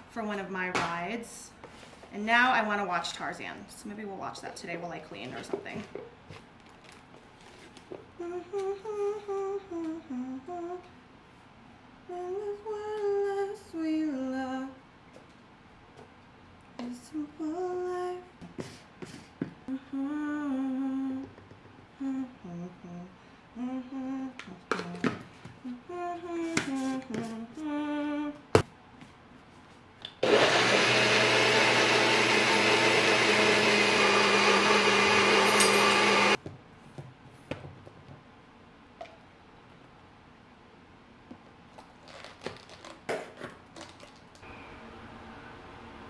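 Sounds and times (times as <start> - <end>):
woman humming: 8.2 - 10.9, 19.7 - 21.4, 22.0 - 28.4
blender running: 30.2 - 36.4.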